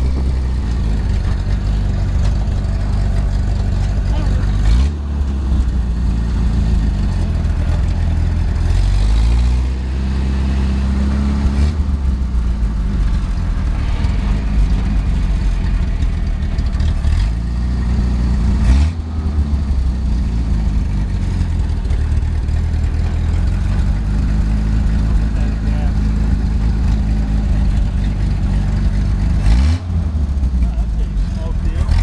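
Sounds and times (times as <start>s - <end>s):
car engine running while driving: 0.0s - 32.0s
sharp thump: 12.5s - 17.6s.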